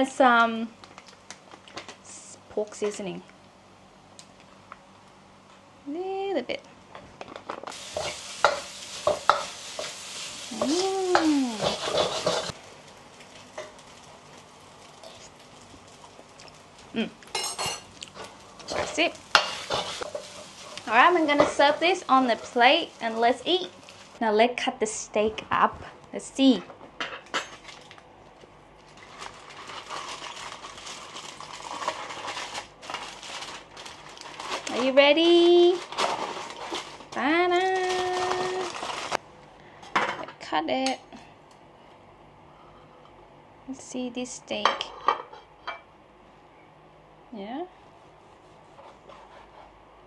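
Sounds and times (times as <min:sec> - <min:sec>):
rice sizzling in a pan: 0:07.6 - 0:24.3, 0:28.9 - 0:39.2
spatula clacking and scraping pan: 0:07.8 - 0:10.0, 0:10.6 - 0:12.6, 0:18.2 - 0:22.6.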